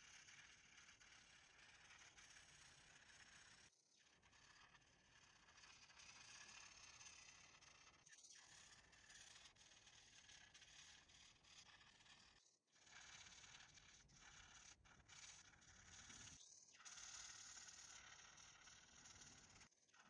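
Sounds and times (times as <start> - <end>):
marker rubbing on paper: 0.1 - 3.7, 4.3 - 20.0.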